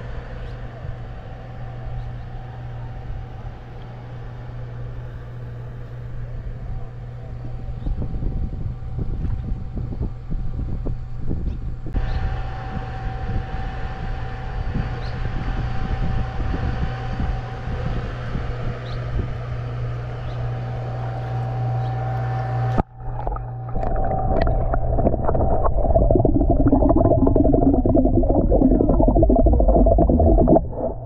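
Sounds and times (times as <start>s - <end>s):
small engine droning with whine: 0.0s - 23.7s
wind rumbling on microphone: 7.4s - 19.5s, 22.8s - 31.0s
underwater hum: 22.7s - 31.0s
muffled underwater sound: 22.8s - 31.0s.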